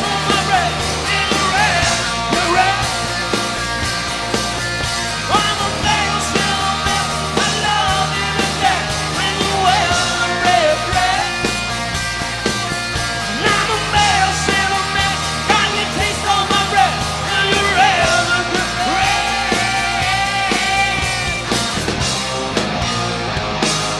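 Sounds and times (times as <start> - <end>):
lead singer singing: 0.0 - 3.4, 5.2 - 11.7, 13.2 - 21.5
rock band playing live: 0.0 - 23.9.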